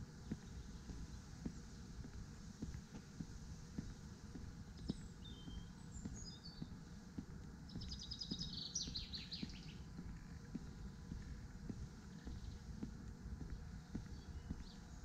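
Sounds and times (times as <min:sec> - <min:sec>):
footsteps walking: 0:00.0 - 0:15.0
songbird notes and trill: 0:04.8 - 0:06.8, 0:07.7 - 0:11.0.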